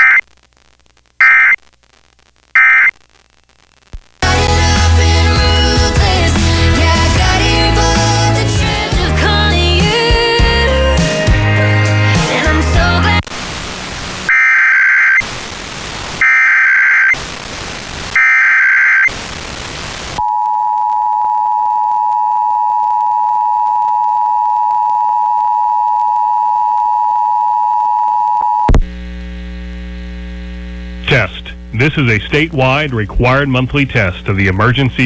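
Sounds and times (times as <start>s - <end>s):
radio hiss: 13.1s - 20.2s, 28.7s - 35.0s
low mains hum: 19.6s - 35.0s.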